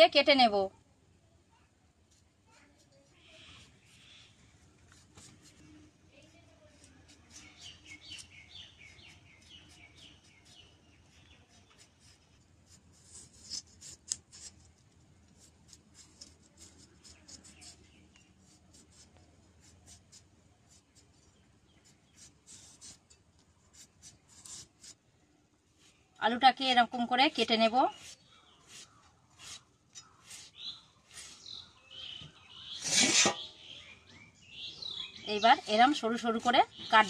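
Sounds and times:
bird chirping: 3.2 - 4.6, 7.3 - 11.9, 27.4 - 37.0
blade scraping potato skin: 6.8 - 10.7, 11.5 - 14.8, 15.4 - 21.2, 21.8 - 25.0, 27.6 - 31.7, 32.7 - 33.5.

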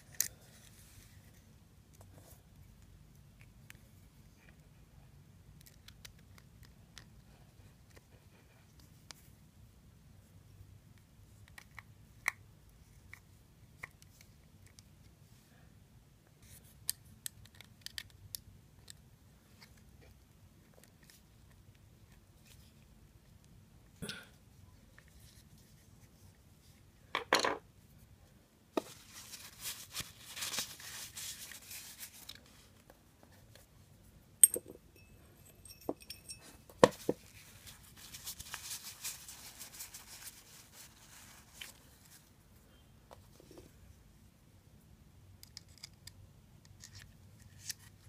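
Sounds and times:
paper tissue rustling and crinkling: 28.8 - 32.9, 37.2 - 42.3.

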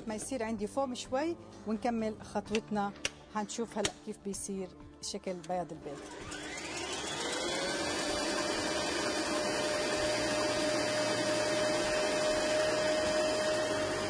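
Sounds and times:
stand mixer motor whine: 6.0 - 14.0.

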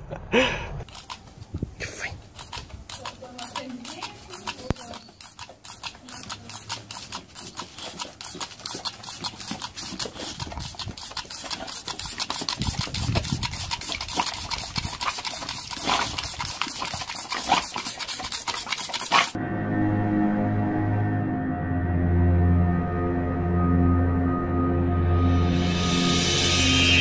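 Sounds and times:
dog snapping at water jet: 2.3 - 19.4.

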